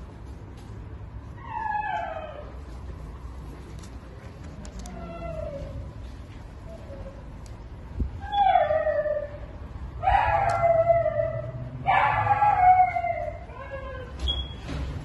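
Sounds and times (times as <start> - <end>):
husky whining and howling: 1.4 - 2.7, 4.8 - 6.0, 8.2 - 14.2.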